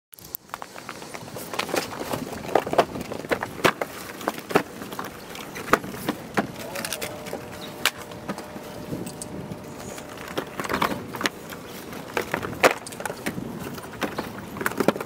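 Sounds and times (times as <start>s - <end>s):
cardboard boxes knocking and scraping: 1.5s - 8.4s, 10.0s - 15.0s.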